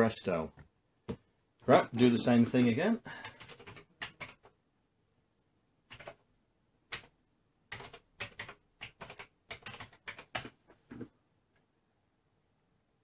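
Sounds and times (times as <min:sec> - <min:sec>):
keyboard keys clicking: 0:05.9 - 0:06.2, 0:07.7 - 0:10.6.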